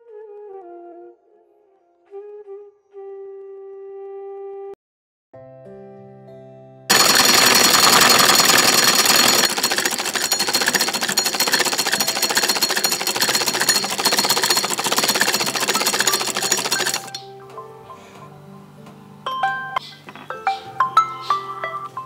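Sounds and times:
sewing machine running fast: 6.9s - 17.2s
soft background music: 17.2s - 22.0s.

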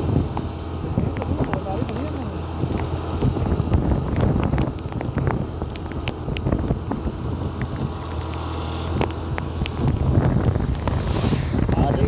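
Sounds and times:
low hum of scooter and road: 0.0s - 12.0s
wind buffeting microphone: 0.0s - 12.0s.

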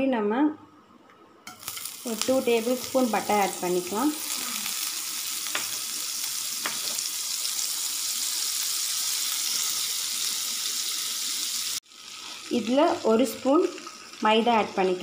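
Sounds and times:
butter sizzling in a pan: 1.5s - 15.0s.

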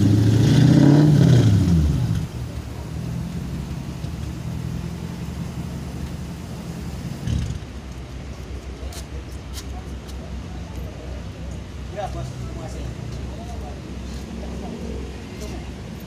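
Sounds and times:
car engine revving and idling: 0.0s - 7.8s.

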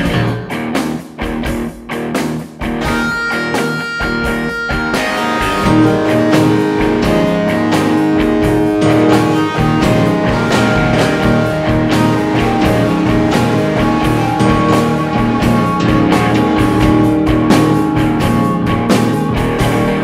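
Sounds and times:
rock music with guitar: 0.0s - 20.0s.

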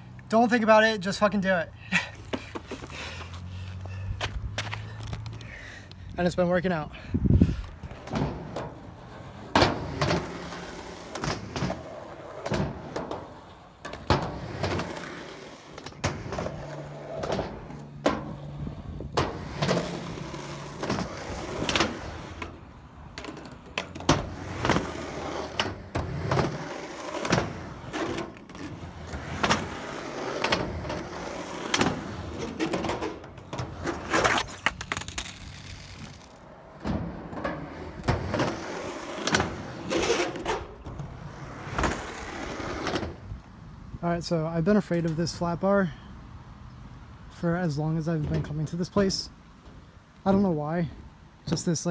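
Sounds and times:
skateboard wheels rolling on concrete: 0.0s - 51.9s
skateboard clacking on ground: 7.9s - 43.2s.

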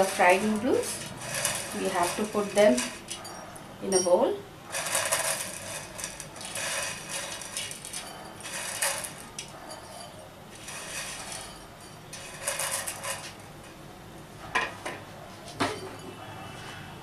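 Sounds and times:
fried noodles rustling and crackling: 0.0s - 3.2s, 4.7s - 9.6s, 10.5s - 13.7s
crockery clinks: 0.0s - 10.4s, 15.6s - 16.2s.

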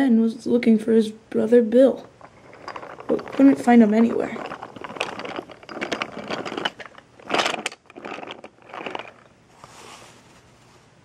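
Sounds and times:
toy train wheels rattling on track: 2.0s - 9.3s.

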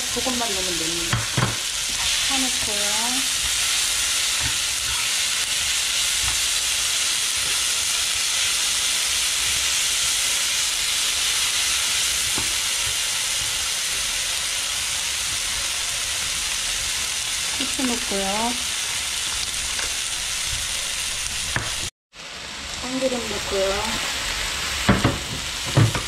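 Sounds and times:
vegetables sizzling in hot oil: 0.0s - 26.0s.

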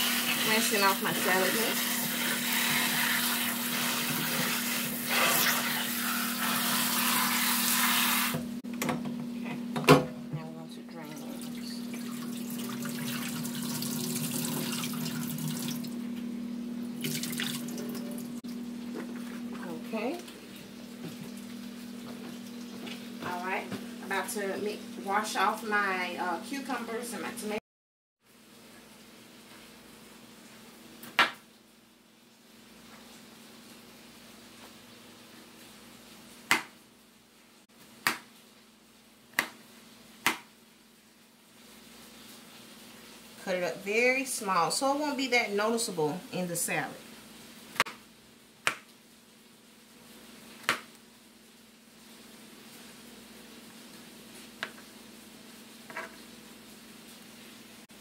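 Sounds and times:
tap water splashing in sink: 11.4s - 16.0s, 17.0s - 18.2s.

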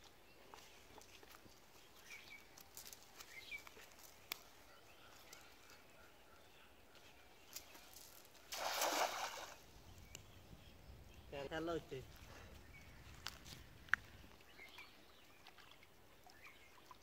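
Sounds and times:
net splashing into water: 8.5s - 9.6s.

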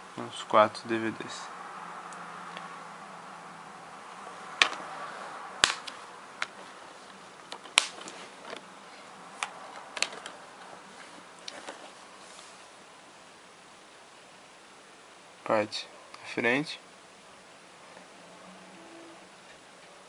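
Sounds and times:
faint steady hiss: 0.0s - 20.0s
plastic cases clicking: 4.6s - 4.9s, 5.6s - 8.7s, 9.4s - 10.4s.

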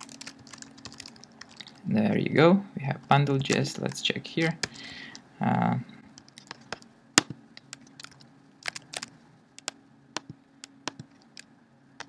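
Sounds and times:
keyboard and mouse clicks: 0.0s - 1.8s, 6.2s - 11.5s
faint low hum: 0.0s - 12.0s.

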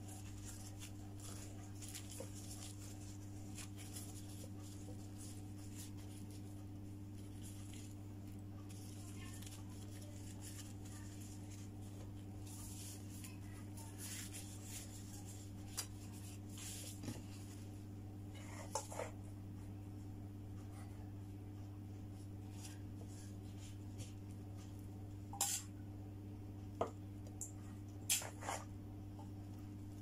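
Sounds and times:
wrappers rubbing and rustling: 0.0s - 17.7s.

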